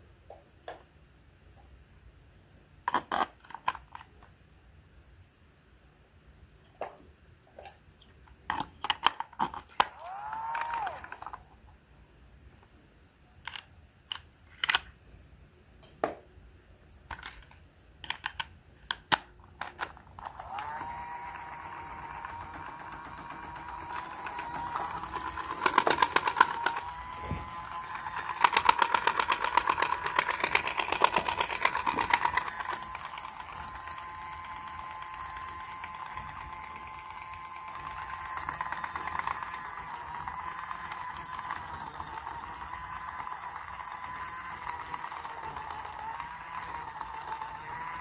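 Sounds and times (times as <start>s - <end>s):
sharp plastic clicks: 8.3s - 11.4s, 13.4s - 14.9s, 17.1s - 34.1s
small motor whining: 9.8s - 11.4s, 20.2s - 48.0s.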